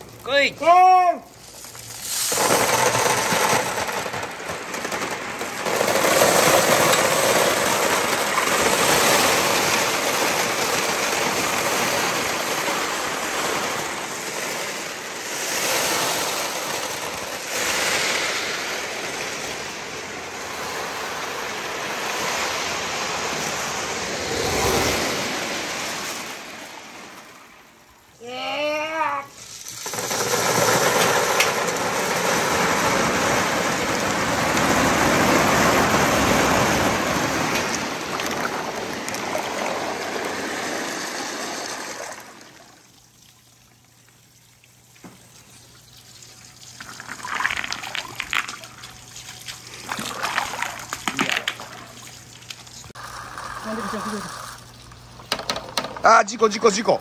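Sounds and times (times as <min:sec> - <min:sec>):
running water: 0:00.0 - 0:04.4, 0:05.8 - 0:57.0
glass marbles clattering down a slide: 0:01.3 - 0:21.5, 0:29.3 - 0:42.9, 0:46.7 - 0:56.1.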